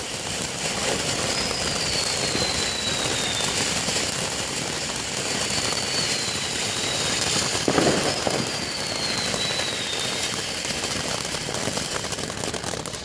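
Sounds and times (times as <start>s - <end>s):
firework crackles: 0.0s - 13.0s
firework fountains hissing: 0.0s - 13.0s
descending whistle: 1.2s - 3.8s, 5.3s - 10.6s.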